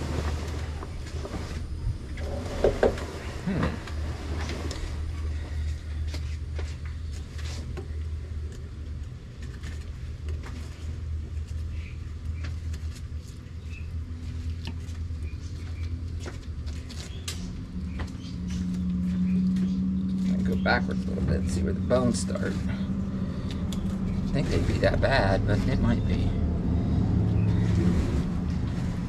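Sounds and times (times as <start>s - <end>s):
higher-pitched hum: 0.0s - 6.1s, 17.2s - 29.0s
low mechanical hum: 0.0s - 29.0s.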